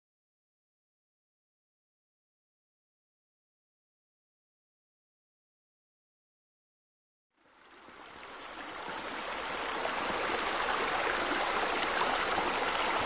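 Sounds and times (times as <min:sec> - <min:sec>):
water rushing and splashing: 0:07.5 - 0:13.0.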